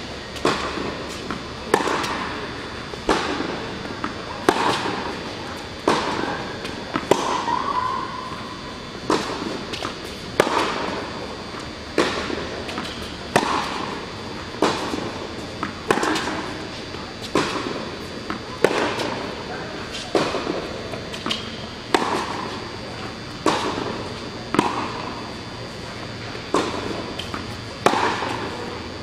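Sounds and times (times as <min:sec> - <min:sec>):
tennis ball hits echoing: 0:12.0 - 0:14.0, 0:14.6 - 0:16.6, 0:20.1 - 0:22.6, 0:23.4 - 0:25.2, 0:26.5 - 0:28.6.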